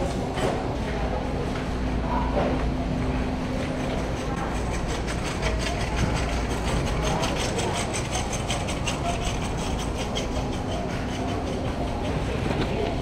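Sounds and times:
shopping cart wheels rattling: 0:04.1 - 0:13.0.

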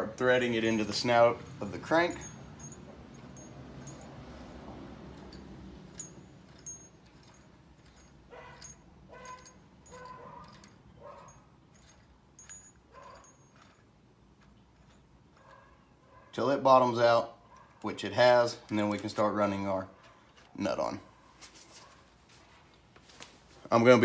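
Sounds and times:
high whining squeaks: 0:01.8 - 0:17.8
faint metal clicks and clinks: 0:01.8 - 0:17.9.

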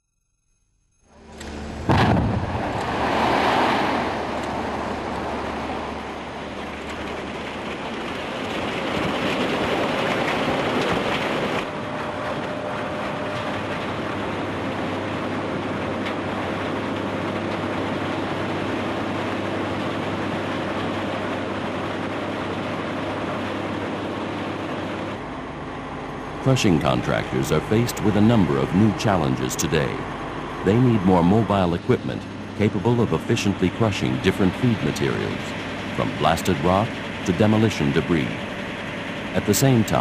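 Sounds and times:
crushing machine drone: 0:00.9 - 0:40.0
loud rushing noise: 0:01.3 - 0:06.7.

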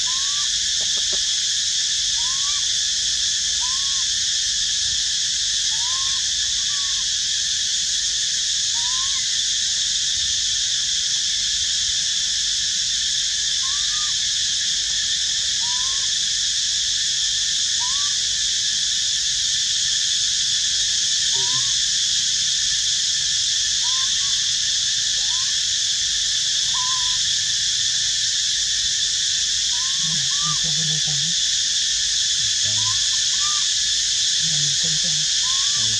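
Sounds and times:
insect chorus drone: 0:00.0 - 0:35.9
rising and falling calls: 0:34.4 - 0:35.9.

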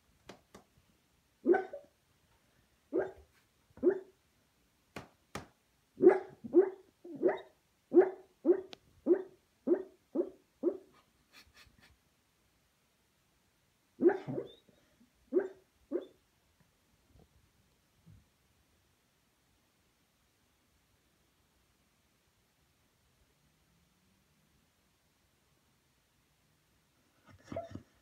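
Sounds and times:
dog barking in sleep: 0:01.4 - 0:01.9, 0:02.9 - 0:04.1, 0:06.0 - 0:11.0, 0:14.0 - 0:14.7, 0:15.3 - 0:16.2.

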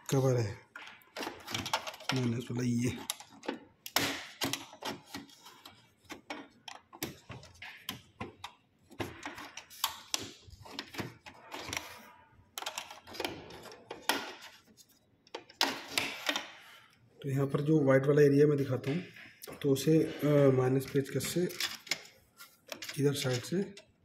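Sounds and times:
screwdriver clicking and scraping plastic: 0:00.8 - 0:16.5.

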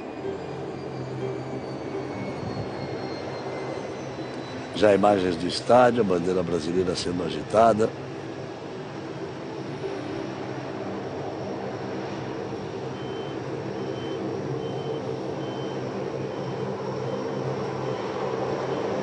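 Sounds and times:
reversing alarm beeping: 0:00.0 - 0:07.6, 0:12.6 - 0:19.0
steady engine drone: 0:00.0 - 0:19.0.

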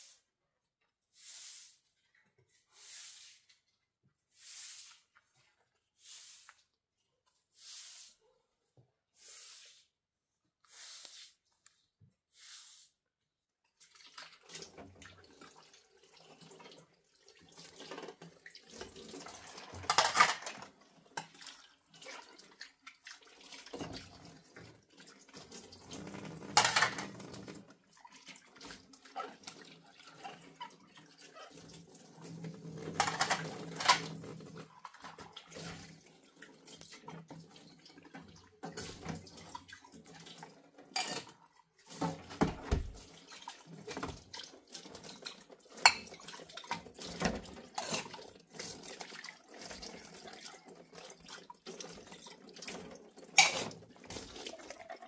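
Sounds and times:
loud dish clatters: 0:19.5 - 0:20.7, 0:26.3 - 0:27.3, 0:32.8 - 0:34.2, 0:53.3 - 0:53.8
dishes clinking: 0:19.8 - 0:20.6, 0:26.6 - 0:27.1, 0:33.0 - 0:34.1, 0:41.0 - 0:41.4, 0:45.9 - 0:46.2, 0:53.4 - 0:53.8
tap running into a sink: 0:41.9 - 0:43.1.

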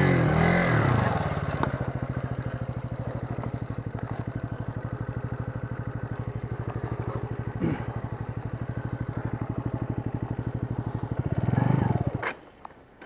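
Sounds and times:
motorcycle engine puttering: 0:00.0 - 0:12.4
motorcycle bump: 0:01.3 - 0:11.4.

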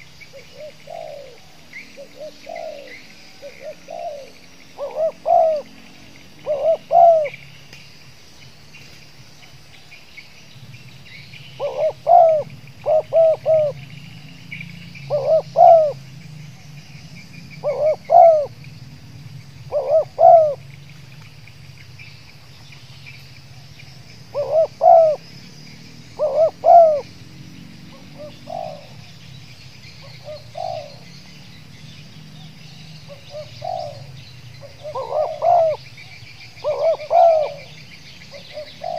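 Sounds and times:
dove cooing: 0:00.0 - 0:07.5, 0:11.4 - 0:16.2, 0:17.5 - 0:18.6, 0:19.6 - 0:20.8, 0:23.5 - 0:29.3, 0:29.9 - 0:31.5, 0:32.7 - 0:38.9
insects chorus: 0:00.0 - 0:38.9.

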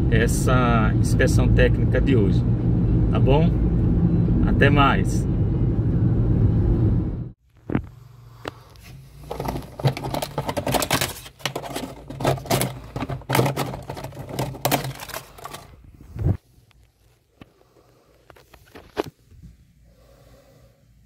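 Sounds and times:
crackling and scraping of breaking wood: 0:09.3 - 0:15.8.

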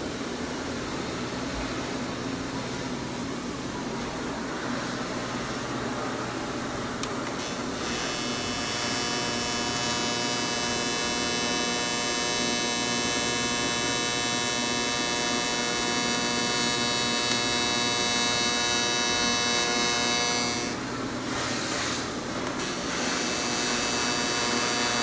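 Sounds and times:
welding arc buzzing: 0:07.3 - 0:25.0.

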